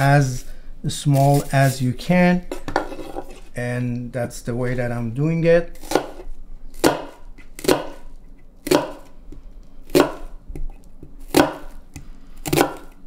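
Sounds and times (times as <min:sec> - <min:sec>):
knife chopping on wooden board: 0:05.8 - 0:06.2, 0:06.8 - 0:08.0, 0:08.6 - 0:09.1, 0:09.9 - 0:10.7, 0:11.3 - 0:11.8, 0:12.4 - 0:13.0.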